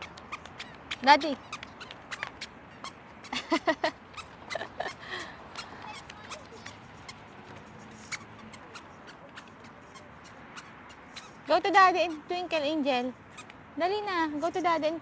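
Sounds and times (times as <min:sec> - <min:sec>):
footsteps squeaking on paving: 0:00.0 - 0:15.0.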